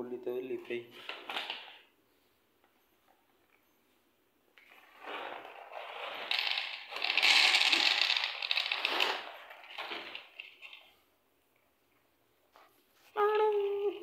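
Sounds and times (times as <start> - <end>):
kibble rattling into plastic bowl: 5.6 - 10.9.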